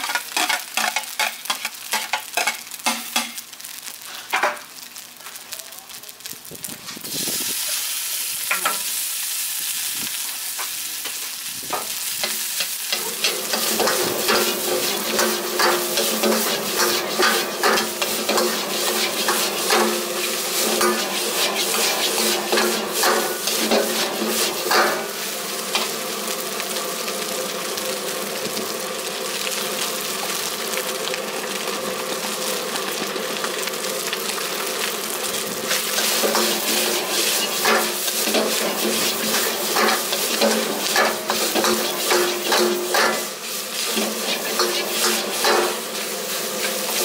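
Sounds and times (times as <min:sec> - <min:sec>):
ladle scraping and clanking on wok: 0:00.0 - 0:03.4, 0:10.6 - 0:25.9, 0:35.7 - 0:47.0
rice sizzling in a wok: 0:00.0 - 0:47.0.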